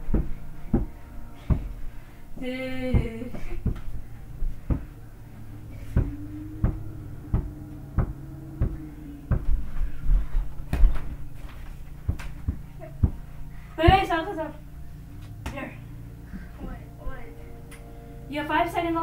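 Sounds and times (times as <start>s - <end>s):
heavy footfalls and scuffling: 0.0s - 1.8s, 2.8s - 5.0s, 5.7s - 14.3s
ball dribbling on carpet: 4.6s - 4.9s, 12.0s - 13.2s.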